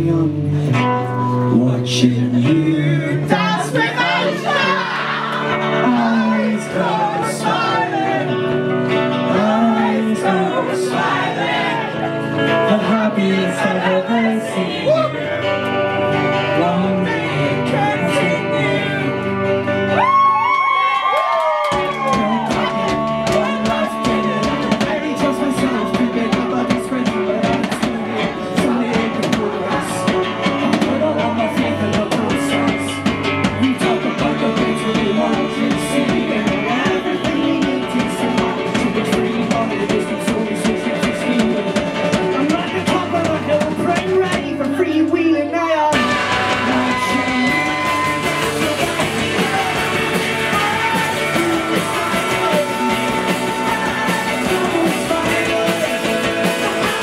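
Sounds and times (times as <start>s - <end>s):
live rock band playing: 0.0s - 57.0s
saxophone: 45.9s - 49.9s.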